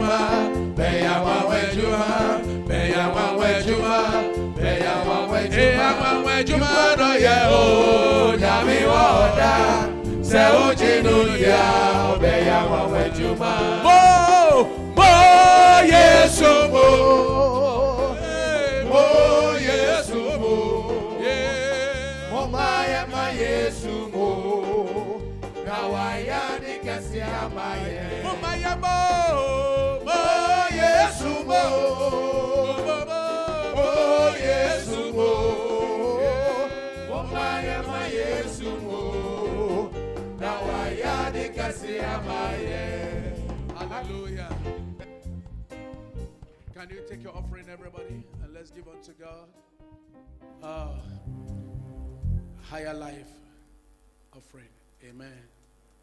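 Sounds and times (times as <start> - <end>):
band accompaniment: 0.0 - 49.5, 50.6 - 52.6
person singing with vibrato: 1.1 - 23.2.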